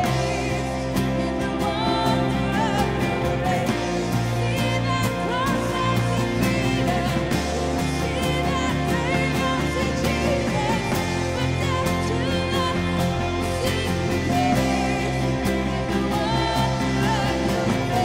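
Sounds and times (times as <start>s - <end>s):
electric guitar: 0.0s - 18.0s
woman singing into microphone: 0.0s - 18.0s.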